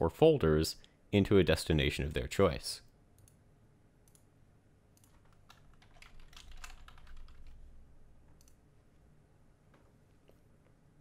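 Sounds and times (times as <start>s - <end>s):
low steady hum: 0.0s - 11.0s
keyboard and mouse clicking: 5.0s - 7.6s, 8.4s - 8.6s.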